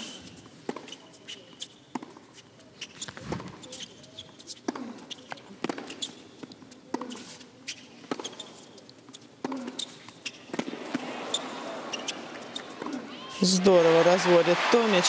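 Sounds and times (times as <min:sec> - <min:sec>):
tennis ball bouncing: 0:00.6 - 0:01.0, 0:01.9 - 0:02.4, 0:03.0 - 0:07.4, 0:08.0 - 0:14.1
racquets striking tennis ball: 0:01.9 - 0:07.4, 0:08.0 - 0:14.2
crowd noise: 0:10.6 - 0:15.0.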